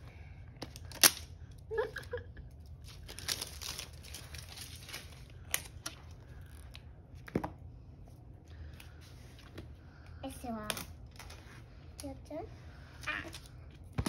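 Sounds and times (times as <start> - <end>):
crinkling: 0.6 - 7.3.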